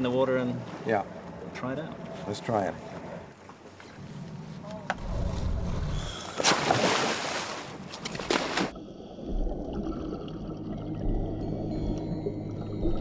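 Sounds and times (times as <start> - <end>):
wind: 0.0 - 9.0
splash into water: 6.2 - 8.8
underwater rush and bubbles: 6.7 - 13.0.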